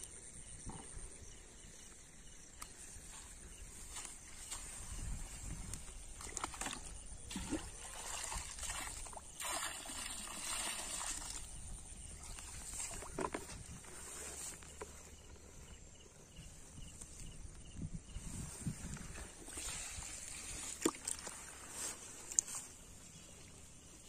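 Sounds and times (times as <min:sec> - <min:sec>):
rustling grass: 0:02.8 - 0:06.0, 0:12.2 - 0:15.7, 0:18.1 - 0:23.4
water sloshing in a plastic bucket: 0:03.0 - 0:15.8, 0:18.4 - 0:22.8.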